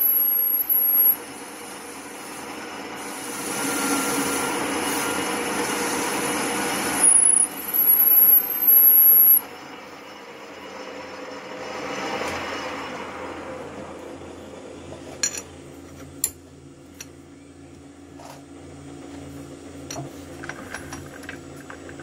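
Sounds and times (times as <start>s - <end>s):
lathe cutting hiss: 0.0s - 14.3s
lathe motor hum: 0.0s - 16.0s.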